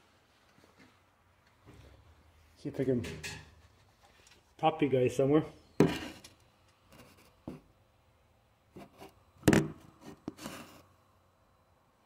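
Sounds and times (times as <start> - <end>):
phone handling rubs and knocks: 8.8 - 10.8.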